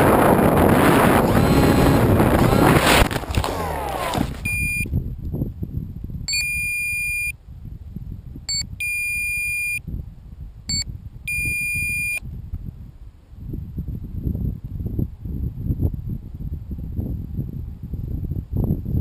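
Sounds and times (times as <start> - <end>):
low rumbling noise: 0.0 - 6.4
electronic beeping: 1.1 - 4.9, 6.3 - 7.3, 8.5 - 9.8, 10.7 - 12.2.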